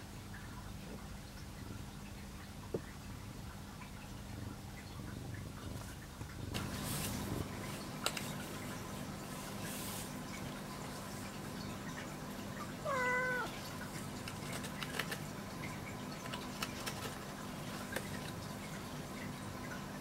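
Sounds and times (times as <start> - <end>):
cat meowing: 12.8 - 13.6.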